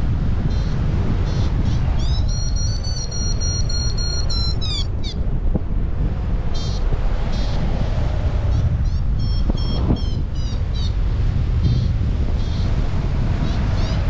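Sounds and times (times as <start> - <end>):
wind rushing over microphone: 0.0 - 14.0
short high beeps: 2.0 - 4.8.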